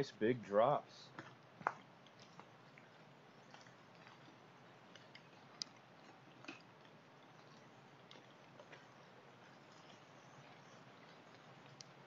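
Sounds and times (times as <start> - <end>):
quiet even hiss: 0.0 - 12.0
raindrops ticking: 1.1 - 12.0.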